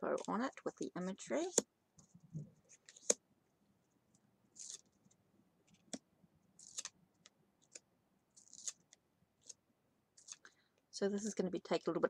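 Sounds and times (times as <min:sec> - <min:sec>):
cards sliding: 0:02.7 - 0:03.2, 0:04.6 - 0:05.0, 0:06.6 - 0:06.9, 0:08.4 - 0:09.6, 0:10.2 - 0:10.4
cards clicking: 0:06.6 - 0:06.9.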